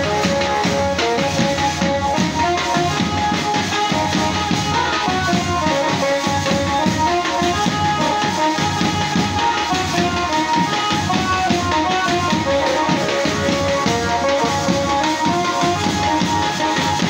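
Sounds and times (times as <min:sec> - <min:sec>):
keyboard melody: 0:11.6 - 0:16.4.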